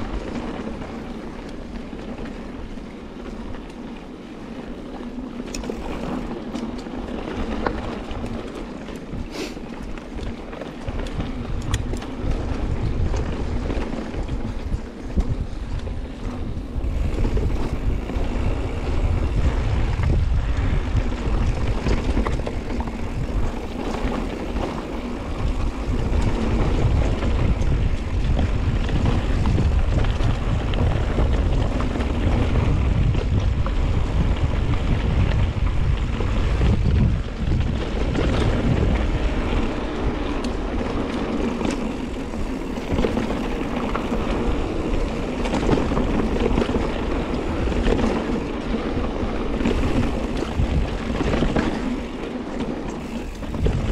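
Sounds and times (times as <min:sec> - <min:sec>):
bike clicks and clatter: 0:00.0 - 0:53.9
tyres rolling on dirt trail: 0:00.0 - 0:53.9
wind on microphone: 0:04.5 - 0:53.9.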